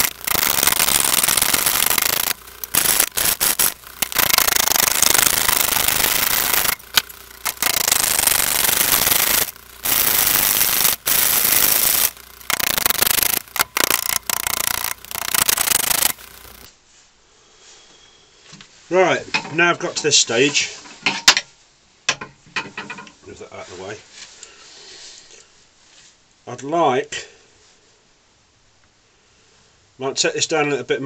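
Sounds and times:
lathe tool rasping wood: 0:00.0 - 0:16.7.

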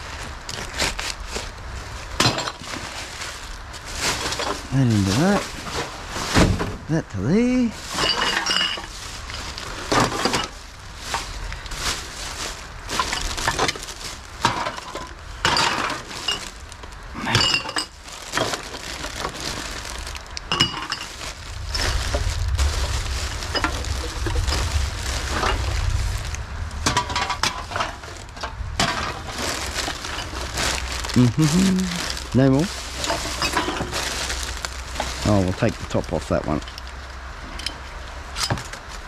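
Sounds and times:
cans and bottles clattering: 0:02.2 - 0:02.9, 0:07.8 - 0:10.6, 0:12.9 - 0:16.6, 0:17.2 - 0:21.3, 0:26.8 - 0:31.0, 0:32.5 - 0:35.2
low rumble: 0:18.8 - 0:35.9.

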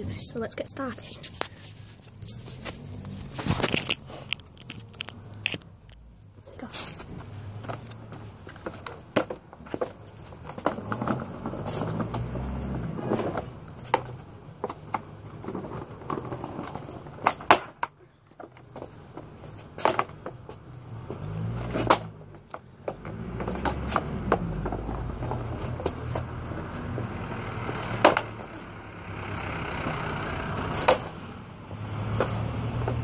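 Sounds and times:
scooter rolling over brick paving: 0:02.2 - 0:33.0
scooter clacks and knocks: 0:07.6 - 0:28.6, 0:30.7 - 0:31.2.

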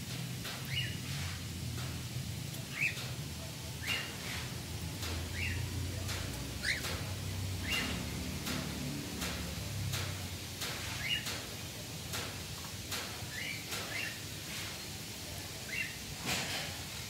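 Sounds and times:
cockatiels chirping: 0:06.6 - 0:07.0, 0:07.6 - 0:08.0.

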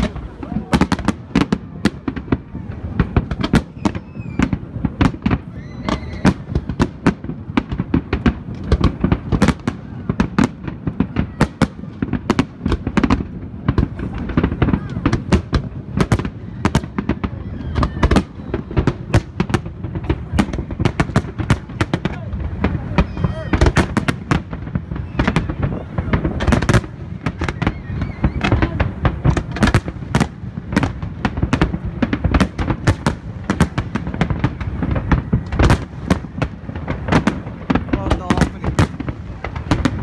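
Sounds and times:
fireworks bangs and crackles: 0:00.0 - 0:40.0.

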